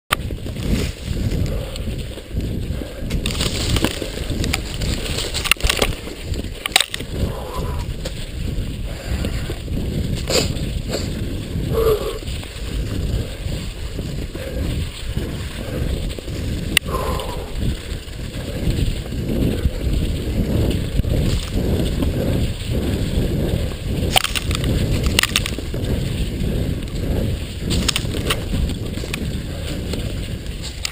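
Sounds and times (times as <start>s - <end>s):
bike knocks and rattles: 0.1s - 7.2s, 17.6s - 30.9s
bike tyres rolling over snow: 0.1s - 30.9s
wind on microphone: 0.1s - 30.9s.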